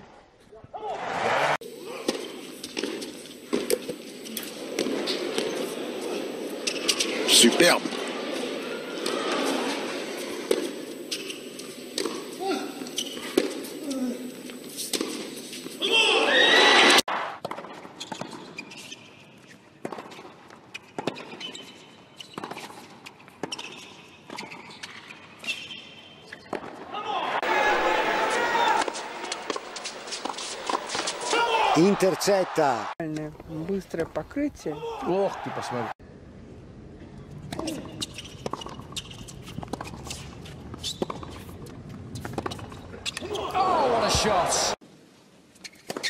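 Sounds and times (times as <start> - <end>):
sneaker squeaks: 2.1 - 16.9, 17.6 - 26.8, 37.4 - 43.7, 45.6 - 46.0
tennis ball hits and bounces: 10.3 - 12.3, 28.7 - 31.5.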